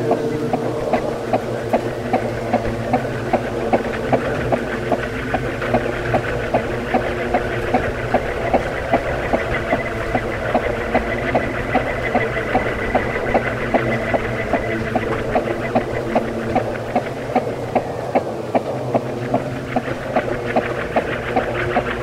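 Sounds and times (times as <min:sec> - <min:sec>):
ceiling fan motor hum: 0:00.0 - 0:22.0
fan ticking: 0:00.0 - 0:22.0.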